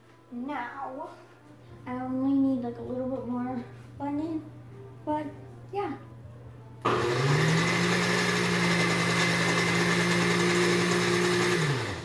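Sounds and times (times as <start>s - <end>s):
blender motor whine: 6.8s - 12.0s.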